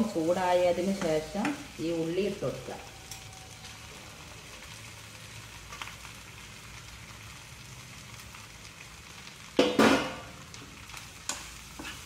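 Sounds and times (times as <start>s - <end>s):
onions and meat sizzling: 0.0s - 12.0s
spoon scraping a pan: 11.3s - 12.0s.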